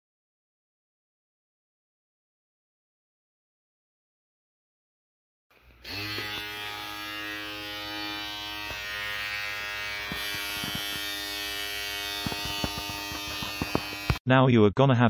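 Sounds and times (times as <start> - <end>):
electric shaver buzzing: 5.5 - 14.2.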